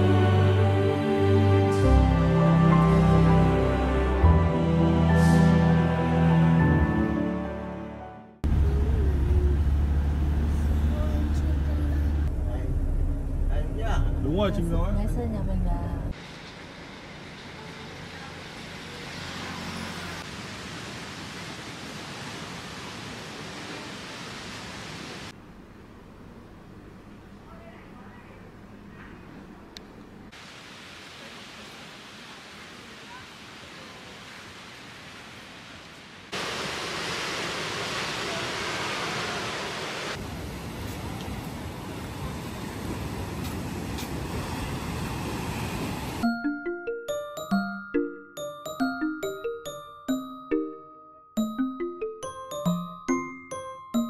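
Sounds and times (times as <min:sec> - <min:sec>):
rushing outdoor ambience: 0:16.1 - 0:26.8, 0:30.1 - 0:46.5.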